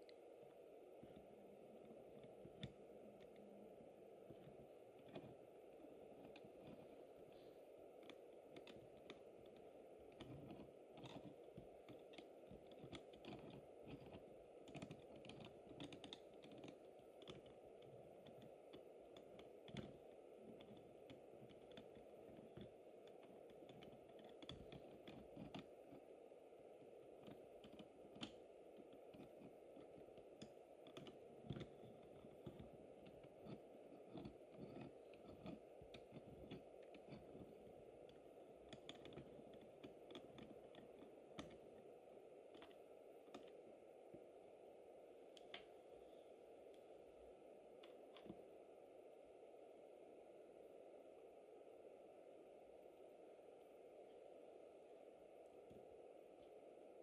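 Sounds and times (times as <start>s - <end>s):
light clicking and ticking: 0.0s - 44.3s, 45.3s - 45.8s.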